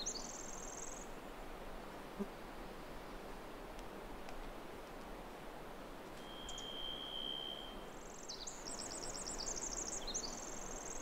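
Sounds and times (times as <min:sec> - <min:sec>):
faint steady hiss: 0:00.0 - 0:11.0
bird trilling song: 0:06.2 - 0:07.7
bird whistling high note: 0:06.2 - 0:07.7.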